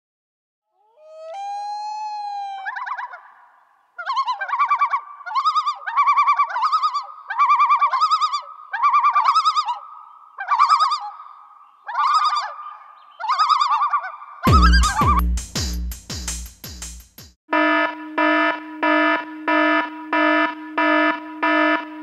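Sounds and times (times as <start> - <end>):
warbling whistle-like call: 0.9 - 3.3
loud electronic beat: 14.5 - 17.4.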